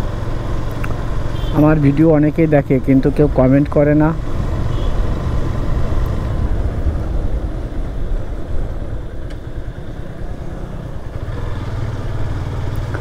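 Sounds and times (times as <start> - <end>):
wind rumble on microphone: 3.1 - 11.4
motorcycle engine running: 4.0 - 13.0.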